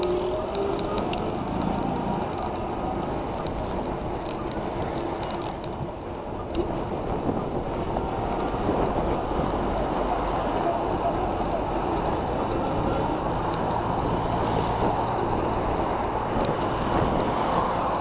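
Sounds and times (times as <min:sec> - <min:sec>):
passing traffic: 0:00.0 - 0:18.0
wind on microphone: 0:06.6 - 0:18.0.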